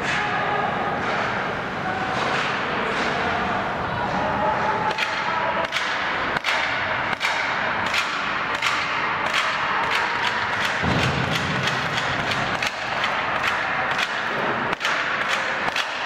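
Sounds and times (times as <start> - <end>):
ice rink din: 0.0 - 16.0
hockey sticks and pucks cracking: 4.7 - 16.0.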